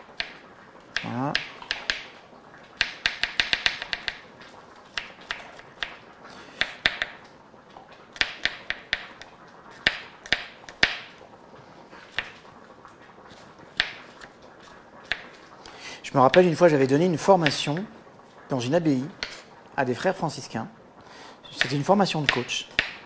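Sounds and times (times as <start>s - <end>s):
knife chopping garlic: 2.8s - 4.2s, 21.6s - 23.0s.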